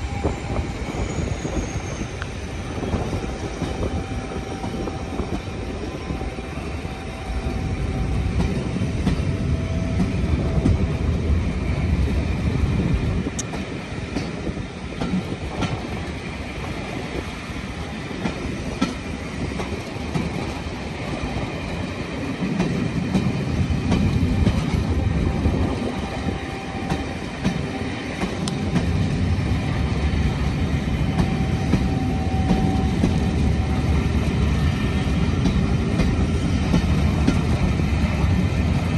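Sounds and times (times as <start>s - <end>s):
faint wheel squeal: 0.0s - 4.9s
train wheels rumbling on rails: 0.0s - 38.9s.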